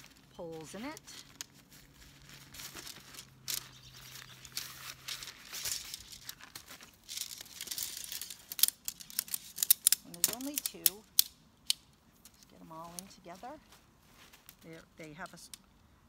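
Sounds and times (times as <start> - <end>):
nylon sack rustling: 0.0 - 10.6
tent poles clicking together: 0.0 - 13.3.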